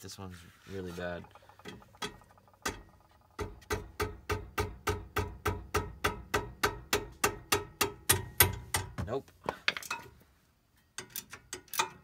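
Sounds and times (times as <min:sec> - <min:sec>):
rubber mallet striking wrench: 0:01.6 - 0:09.0.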